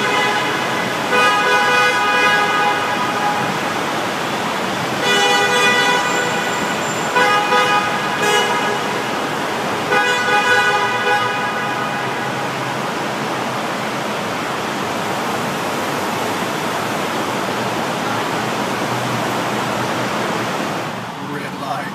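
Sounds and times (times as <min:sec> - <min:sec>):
car horn: 0:00.0 - 0:13.3
traffic echoing in tunnel: 0:00.0 - 0:21.9.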